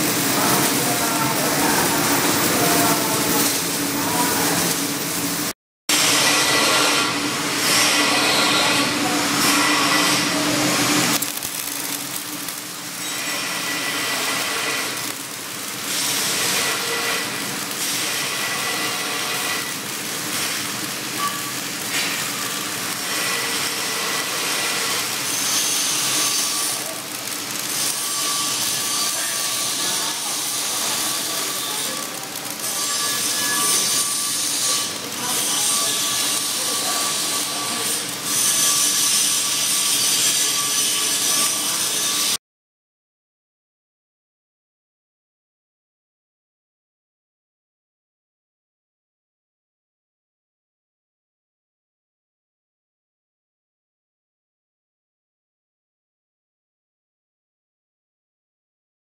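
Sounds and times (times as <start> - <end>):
welding arc crackling and hissing: 0.0 - 42.4.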